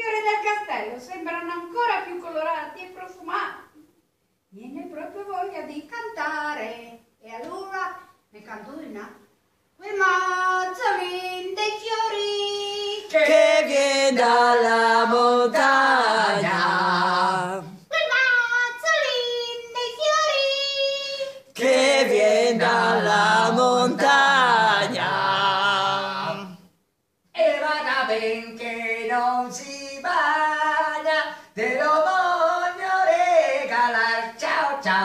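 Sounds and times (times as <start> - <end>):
person singing unaccompanied: 12.2 - 26.7, 27.4 - 35.0.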